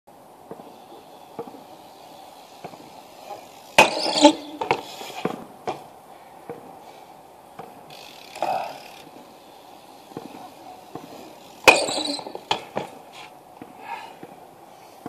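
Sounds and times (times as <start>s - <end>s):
bike knocking on paving: 0.4s - 1.8s, 2.5s - 6.8s, 7.5s - 14.4s
bike clacking on concrete ledge: 0.4s - 6.8s, 7.5s - 14.4s.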